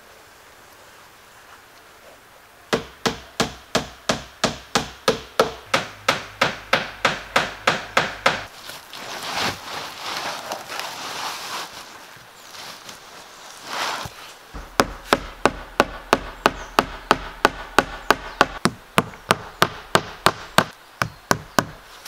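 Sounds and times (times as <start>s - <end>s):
hammer nailing roofing: 2.8s - 8.5s
roofing felt rustling scrape: 8.5s - 14.4s.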